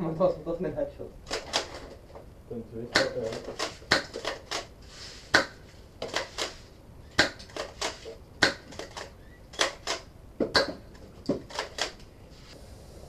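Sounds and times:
airsoft gun firing: 0:03.0 - 0:04.7, 0:07.2 - 0:10.8.

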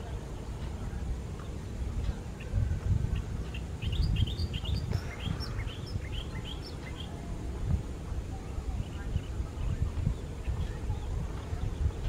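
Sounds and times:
small birds chirping: 0:00.0 - 0:07.5, 0:08.2 - 0:12.0
low uneven rumble: 0:00.0 - 0:12.0.

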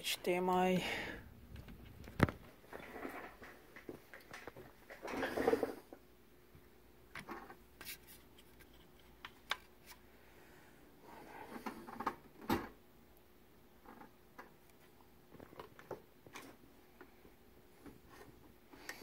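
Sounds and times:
faint steady hum: 0:00.0 - 0:19.0
small clicks taps and rustles: 0:01.5 - 0:05.0.

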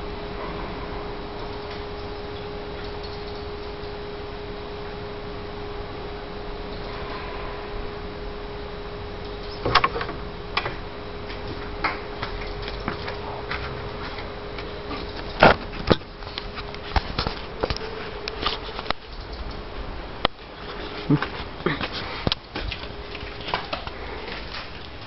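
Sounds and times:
steady factory whistling tone: 0:00.0 - 0:20.8
clicks and knocks: 0:09.4 - 0:19.6.

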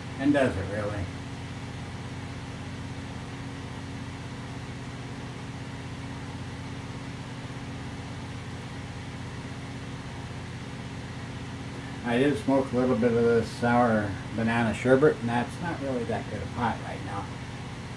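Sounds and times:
low machine hum with hiss: 0:00.0 - 0:17.9.

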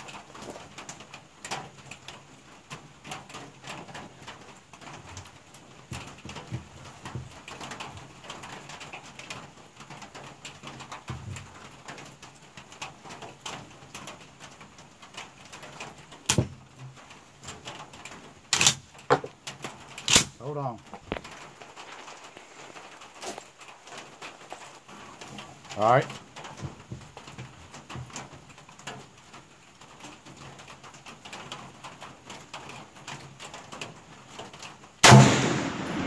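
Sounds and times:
rifle shot: 0:20.1 - 0:20.3, 0:35.0 - 0:36.0.

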